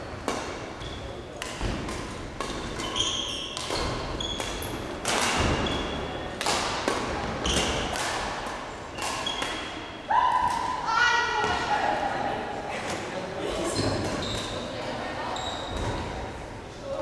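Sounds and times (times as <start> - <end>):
shoes squeaking on court floor: 0.0 - 1.4, 2.2 - 6.3, 7.4 - 8.0, 8.9 - 10.0, 13.6 - 16.1
rackets hitting shuttlecock: 0.2 - 10.8.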